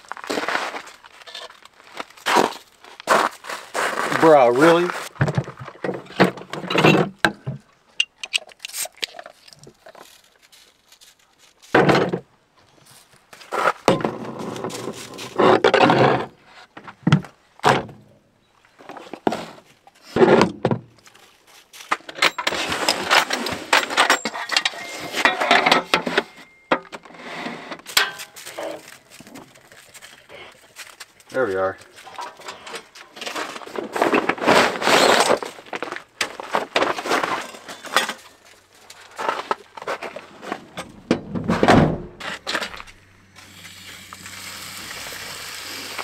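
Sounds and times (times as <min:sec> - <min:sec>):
cooler opening: 0:39.2 - 0:42.8.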